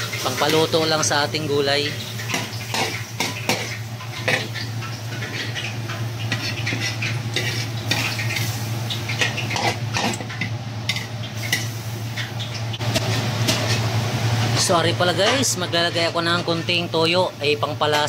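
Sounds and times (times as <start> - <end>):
food sizzling in a wok: 0.0 - 18.0
metal ladle scraping a wok: 6.3 - 8.6, 12.8 - 13.9.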